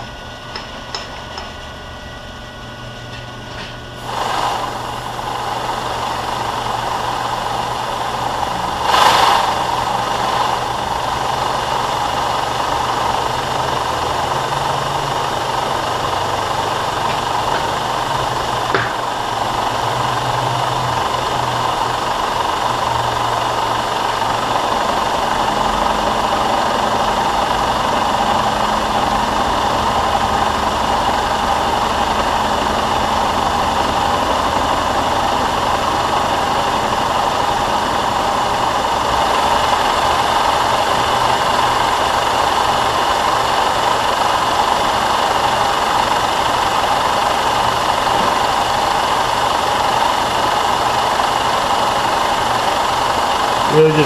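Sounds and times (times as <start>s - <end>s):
air blast hiss: 4.0s - 11.9s
milling machine cutting steel: 4.0s - 54.0s.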